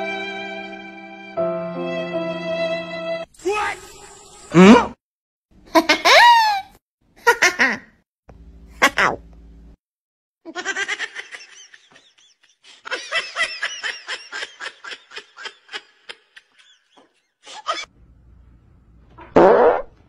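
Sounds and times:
person giggling: 11.6s - 17.9s.

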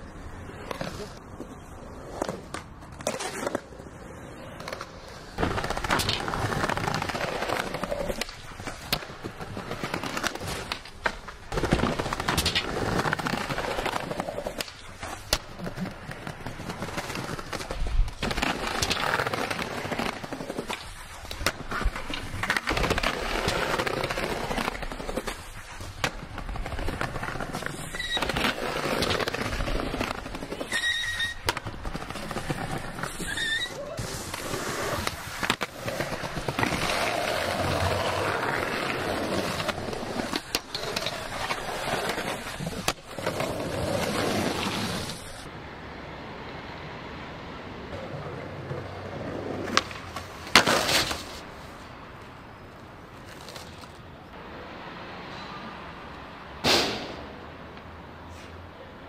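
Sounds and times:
skateboard wheels rolling on concrete: 0.0s - 59.0s
skateboard clacks: 4.3s - 45.5s, 47.9s - 51.4s.

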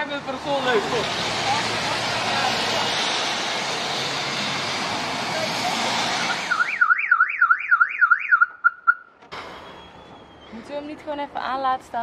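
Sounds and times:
car alarm siren warbling: 6.3s - 10.5s.

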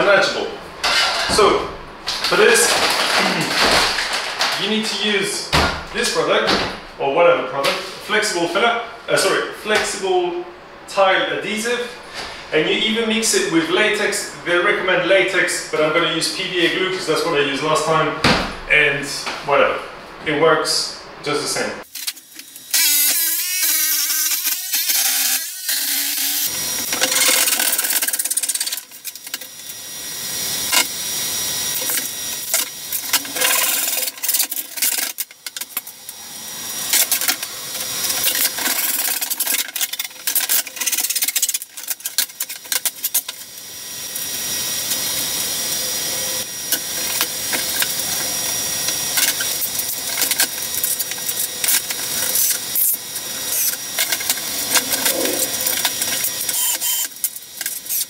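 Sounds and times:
power tools cutting and drilling wood: 21.9s - 58.0s.

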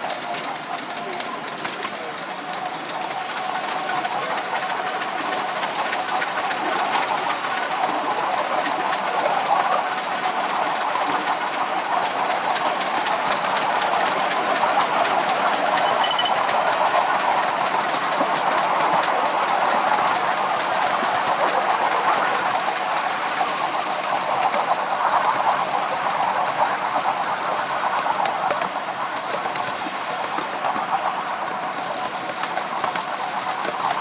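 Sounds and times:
steam hissing: 0.0s - 15.9s
train wheels on rails: 0.0s - 34.0s.

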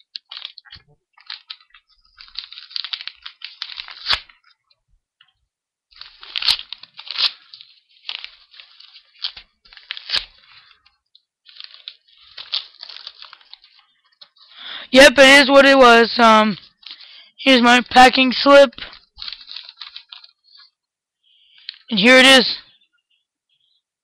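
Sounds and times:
packaging tearing and crinkling: 0.0s - 4.5s, 5.9s - 10.8s, 11.4s - 13.8s, 18.9s - 20.6s.

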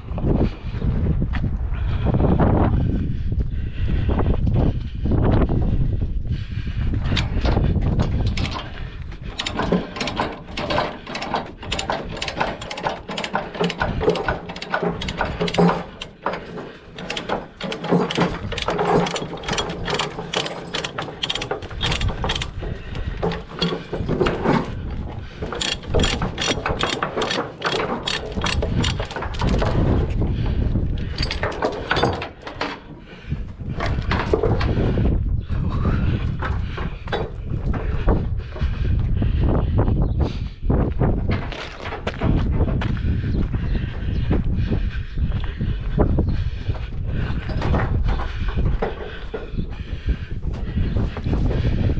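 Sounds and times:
chain rattling: 7.1s - 33.1s, 33.7s - 34.8s
ratchet pawl clicking: 17.0s - 22.6s, 25.5s - 29.2s.

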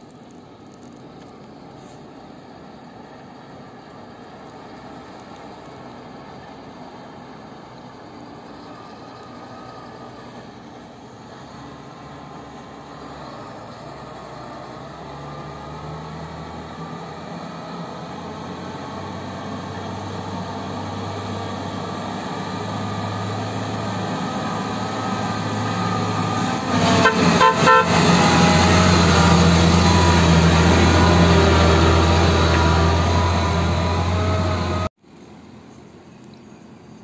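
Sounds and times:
diesel truck engine: 0.0s - 35.0s
horn short toots: 26.8s - 29.0s.

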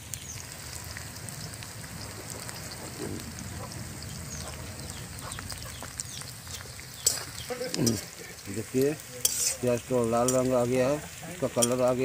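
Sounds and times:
onions sizzling in oil: 0.0s - 12.0s
animal chirps: 2.6s - 7.5s.

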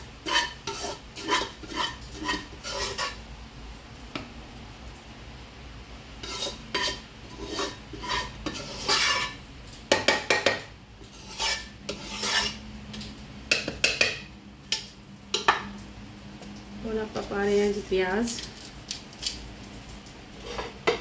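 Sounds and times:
spoon scraping food in a pot: 0.0s - 3.2s, 6.2s - 15.7s, 20.4s - 21.0s.

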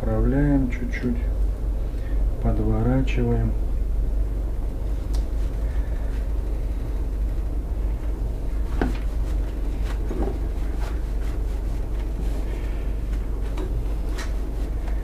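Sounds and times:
low hum: 0.0s - 15.0s
rustles and taps of hands rolling: 7.9s - 12.4s.

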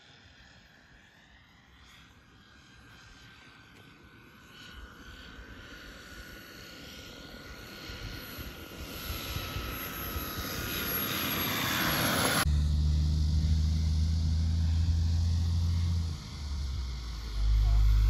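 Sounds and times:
model airplane propeller whine: 0.0s - 18.0s
loud steady low drone: 10.8s - 18.0s.

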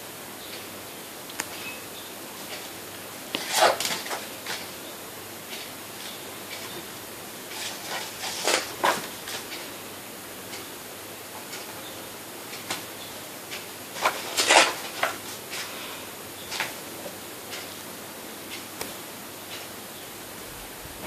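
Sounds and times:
background hiss: 0.0s - 21.0s
book pages turning: 3.3s - 4.6s, 7.5s - 9.6s, 14.0s - 15.7s.

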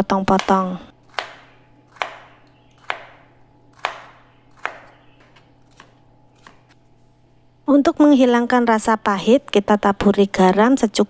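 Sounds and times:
knife chopping on plastic board: 0.3s - 6.8s.

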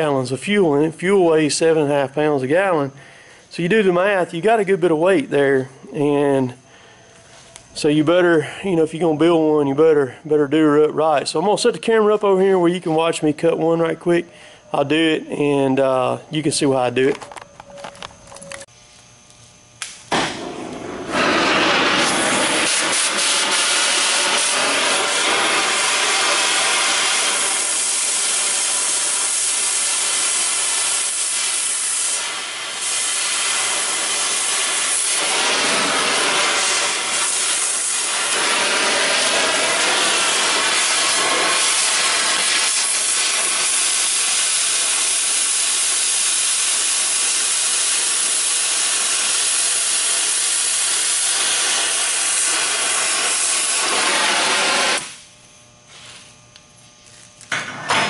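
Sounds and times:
cutting torch hissing: 0.0s - 9.2s, 19.8s - 55.3s.

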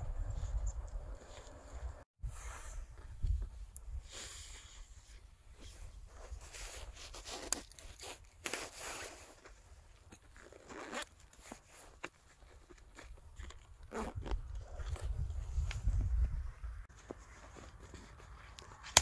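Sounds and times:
backpack fabric rustling and scraping: 4.4s - 19.0s.

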